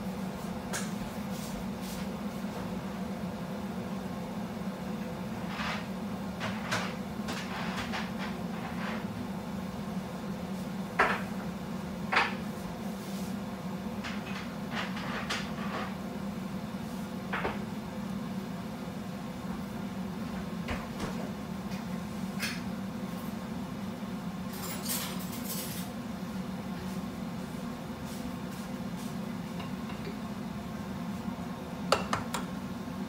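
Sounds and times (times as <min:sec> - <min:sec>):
steady low hum: 0:25.4 - 0:33.0
kitchen things clicking and knocking: 0:31.9 - 0:32.5.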